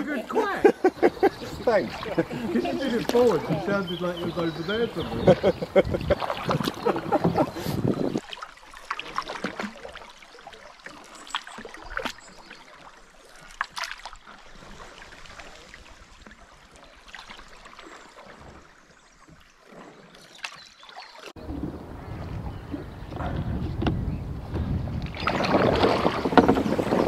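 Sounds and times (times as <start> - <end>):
water rippling along canoe hull: 0.0 - 27.0
splashes and drips: 1.3 - 5.0, 6.0 - 21.4, 25.0 - 27.0.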